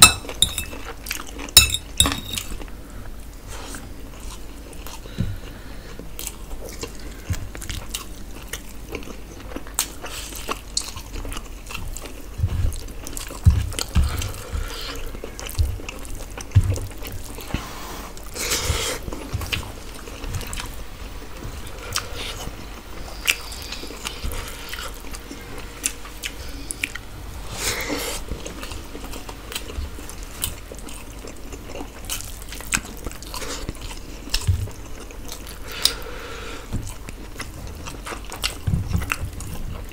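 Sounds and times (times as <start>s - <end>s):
people chewing and smacking: 0.0s - 27.1s, 27.7s - 39.9s.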